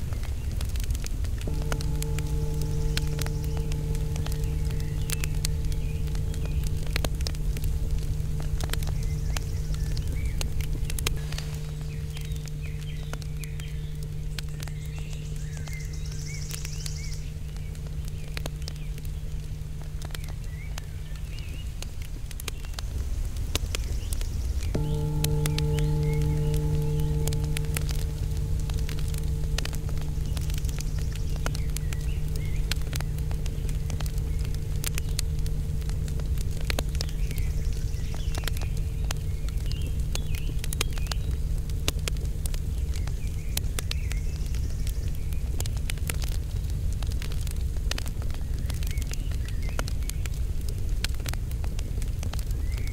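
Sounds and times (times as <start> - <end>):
fire crackling and popping: 0.0 - 52.9
low steady hum: 0.0 - 52.9
steady low rumble: 0.0 - 52.9
birds chirping: 1.4 - 23.0, 23.6 - 46.3.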